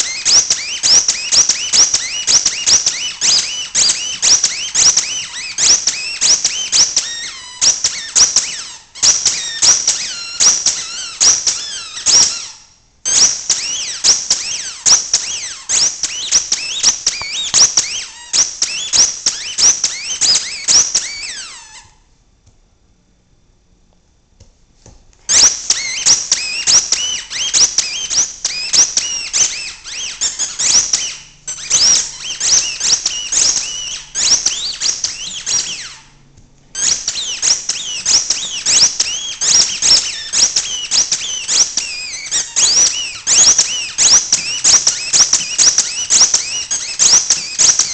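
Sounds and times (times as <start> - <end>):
dog toy squeaker squealing: 0.0 - 22.0, 25.3 - 47.9.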